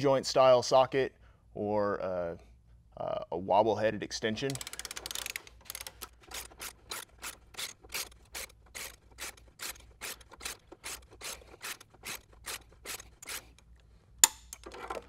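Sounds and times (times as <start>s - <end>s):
hand ratchet clicking: 4.4s - 15.0s.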